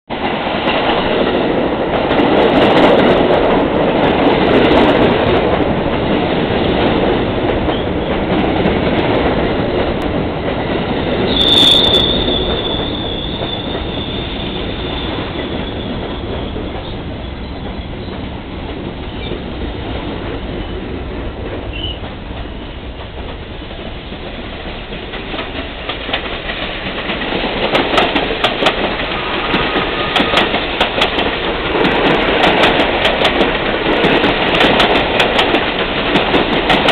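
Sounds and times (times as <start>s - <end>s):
train wheels rumbling on rail: 0.1s - 36.9s
high wheel squeal: 11.3s - 18.2s.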